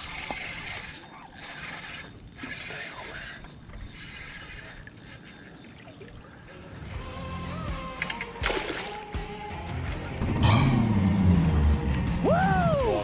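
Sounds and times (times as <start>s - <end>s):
fishing reel gears whirring: 0.0s - 9.9s.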